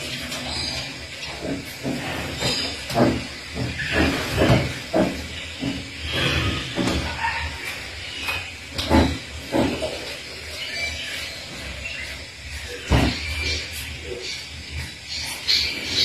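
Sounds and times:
tiger grunts and hisses: 5.6s - 7.6s.

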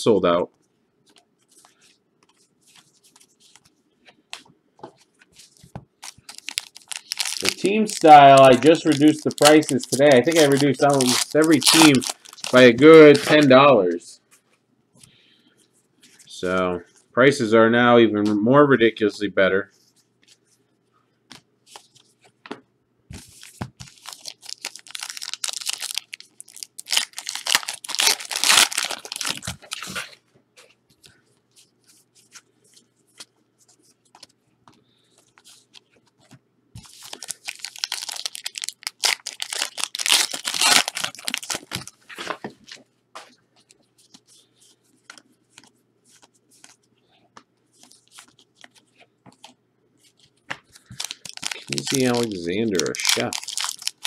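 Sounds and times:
wrappers tearing and crinkling: 6.0s - 13.6s, 23.4s - 30.2s, 36.8s - 42.3s, 50.8s - 54.0s.

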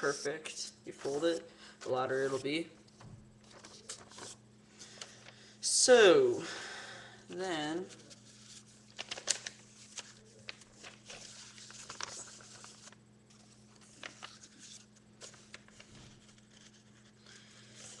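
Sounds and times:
paper rustling and crinkling: 2.2s - 5.4s, 7.8s - 18.0s.

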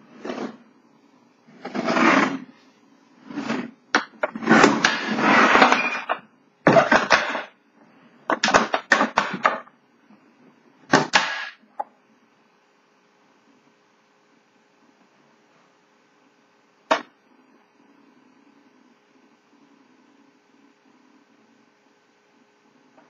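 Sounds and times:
case scraping on wooden desk: 0.1s - 0.6s, 1.5s - 2.5s, 3.2s - 5.8s.

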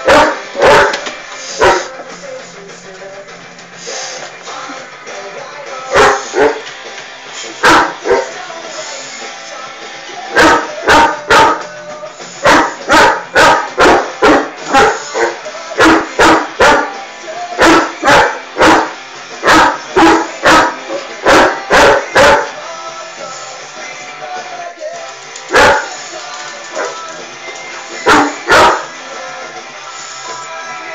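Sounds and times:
dog barking loudly: 0.0s - 1.9s, 5.9s - 6.6s, 7.6s - 8.4s, 10.3s - 11.6s, 12.4s - 17.0s, 17.6s - 22.6s, 25.5s - 25.9s, 28.0s - 28.9s
music playing: 0.0s - 30.9s.

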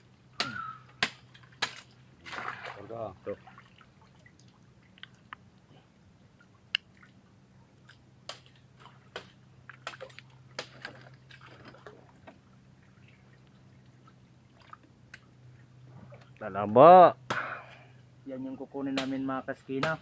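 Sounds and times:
water dripping: 3.4s - 5.6s.

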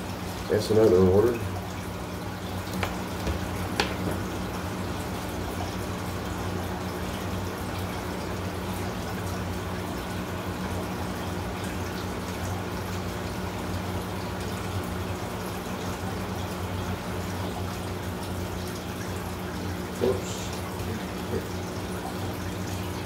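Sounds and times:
aquarium water bubbling: 0.0s - 23.0s.

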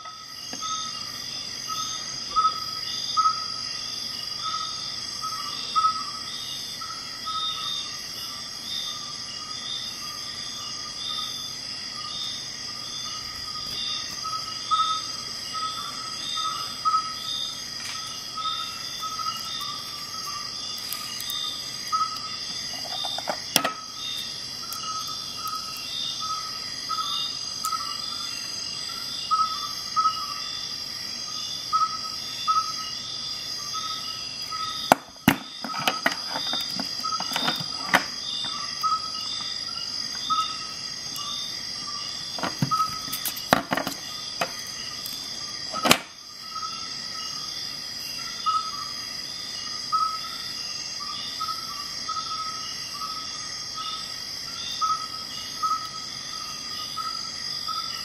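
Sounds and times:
metal tools clicking and tapping: 22.7s - 23.8s.

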